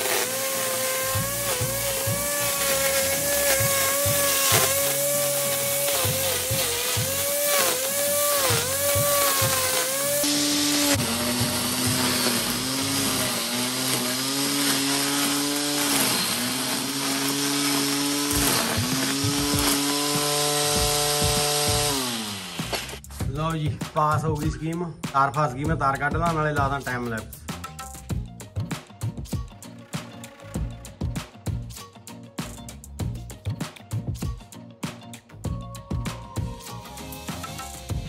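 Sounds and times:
angle grinder whining cutting grass: 0.0s - 23.1s.

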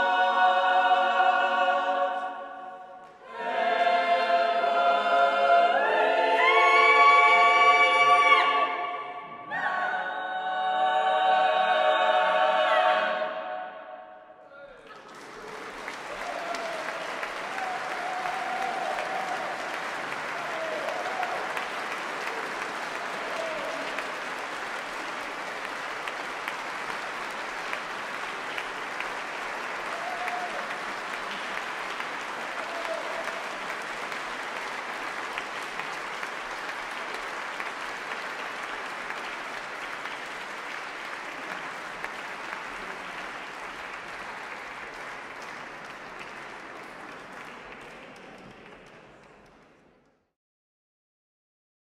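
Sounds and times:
audience applauding: 14.7s - 50.0s.

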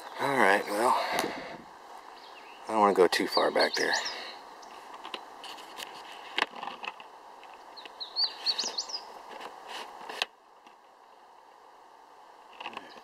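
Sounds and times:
songbird singing: 0.0s - 5.4s, 7.1s - 9.3s, 12.7s - 13.0s
woodland ambience: 0.0s - 13.0s.

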